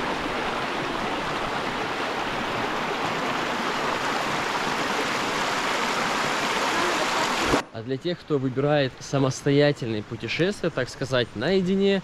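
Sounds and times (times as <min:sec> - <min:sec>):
river water rushing: 0:00.0 - 0:07.6.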